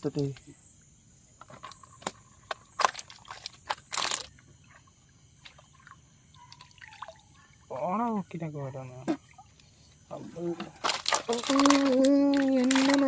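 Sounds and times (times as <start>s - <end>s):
water splashing around a canoe: 1.6s - 7.9s, 9.0s - 13.0s.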